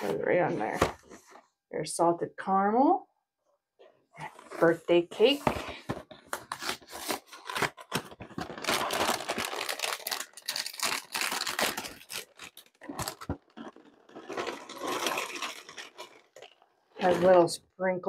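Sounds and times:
cardboard box tearing: 0:06.5 - 0:16.3
plastic bag crinkling: 0:07.0 - 0:17.4
cereal pouring into glass bowl: 0:13.6 - 0:16.4.

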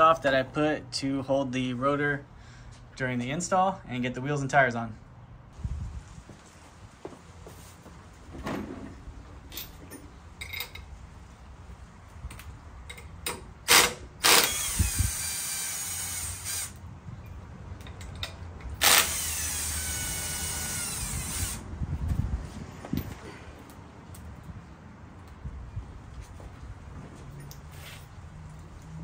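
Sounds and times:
power tool whine: 0:13.7 - 0:16.8, 0:18.8 - 0:21.6.

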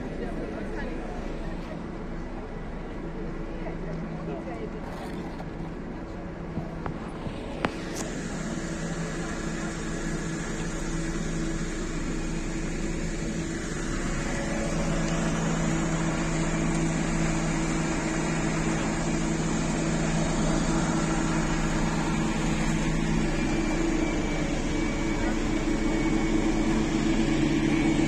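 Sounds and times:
transit vehicle mechanical hum: 0:00.0 - 0:28.0.

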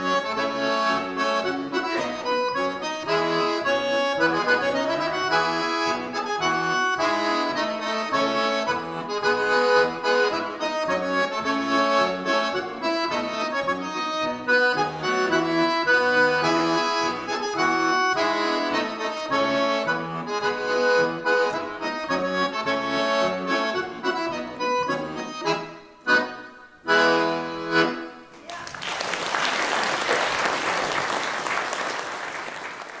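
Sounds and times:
button accordion playing polka: 0:00.0 - 0:28.4
audience applauding: 0:28.4 - 0:33.0.

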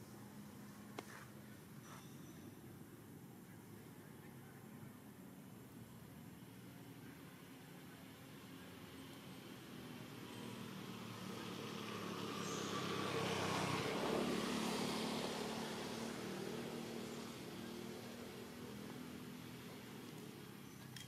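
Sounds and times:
vehicle passing by: 0:08.4 - 0:20.9.

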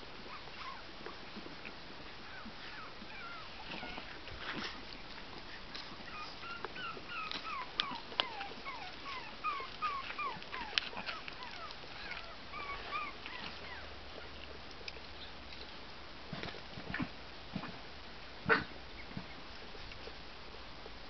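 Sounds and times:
small dog whining: 0:00.2 - 0:00.9, 0:02.2 - 0:04.8, 0:05.7 - 0:14.4.

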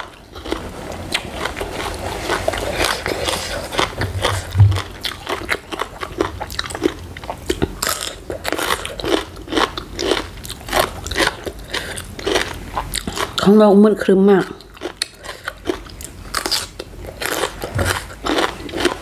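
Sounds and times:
crunching raw vegetables: 0:00.0 - 0:13.6, 0:14.4 - 0:19.0
low knock: 0:04.5 - 0:04.9.

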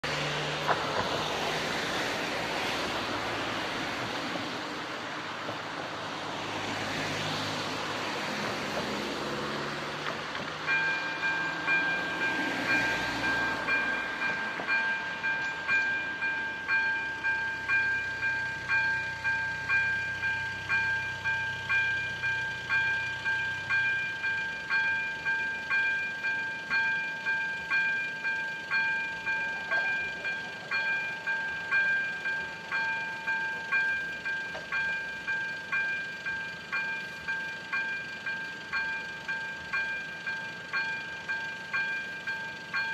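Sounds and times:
road traffic passing: 0:00.0 - 0:42.9
level crossing bell ringing: 0:10.7 - 0:42.9.

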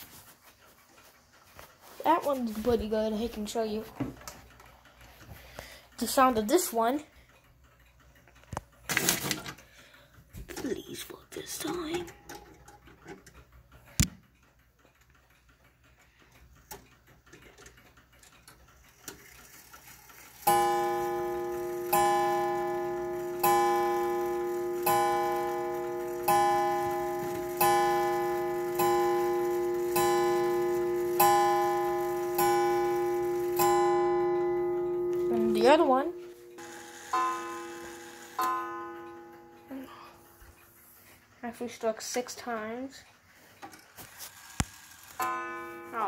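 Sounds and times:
clock striking: 0:10.4 - 0:43.0, 0:44.4 - 0:46.0.

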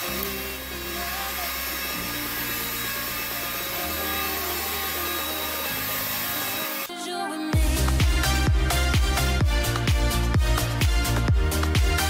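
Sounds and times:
stick vacuum running: 0:00.0 - 0:06.9.

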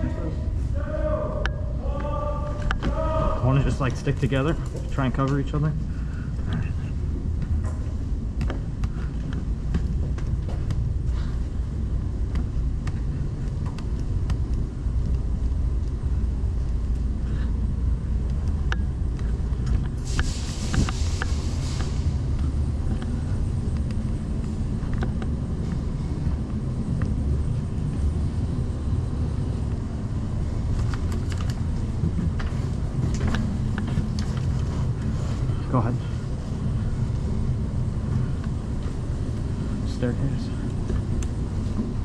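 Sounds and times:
low indoor rumble: 0:00.0 - 0:42.0
faint clicks and taps: 0:12.2 - 0:16.0
brief hiss: 0:20.1 - 0:22.2.

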